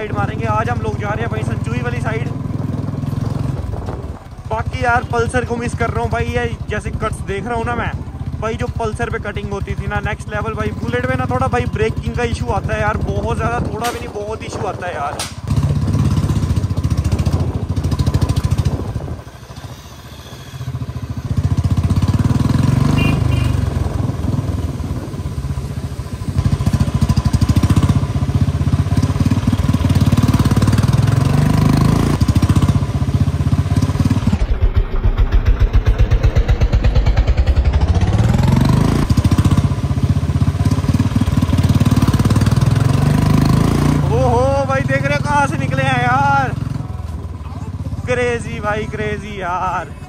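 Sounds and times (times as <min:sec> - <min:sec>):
motorcycle engine running: 0:00.0 - 0:50.0.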